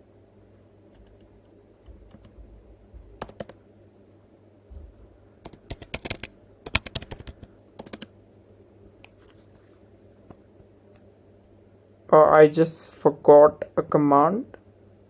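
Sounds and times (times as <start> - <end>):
typing on a computer keyboard: 0.9 - 2.4, 3.2 - 3.6, 5.4 - 8.1.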